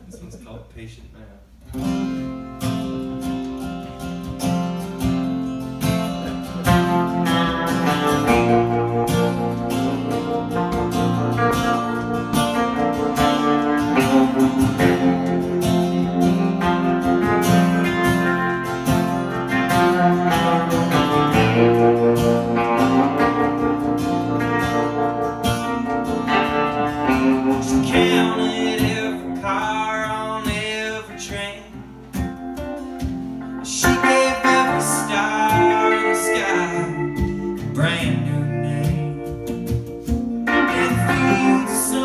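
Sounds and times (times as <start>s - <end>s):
electric guitar playing: 1.6s - 42.0s
strummed acoustic guitar: 1.6s - 42.0s
man singing: 27.5s - 31.9s, 33.6s - 39.7s, 40.5s - 42.0s.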